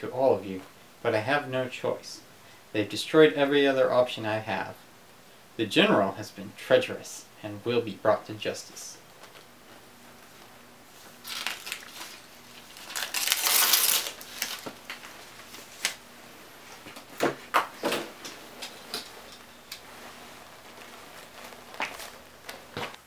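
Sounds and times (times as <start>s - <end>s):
paper rustling: 11.0s - 16.0s, 18.3s - 23.0s.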